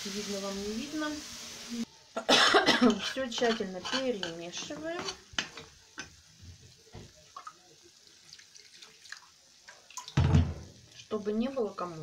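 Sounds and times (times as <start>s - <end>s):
spoon stirring in a frying pan: 2.8s - 10.2s
loud thump: 10.2s - 10.6s.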